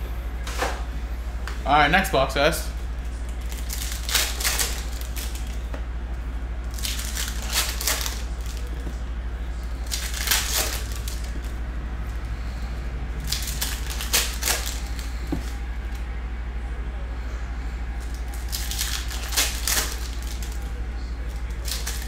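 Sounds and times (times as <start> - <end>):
steady low hum: 0.0 - 22.0
foil wrappers tearing and crinkling: 3.2 - 5.6, 6.7 - 8.8, 9.8 - 11.5, 13.2 - 15.6, 18.0 - 22.0.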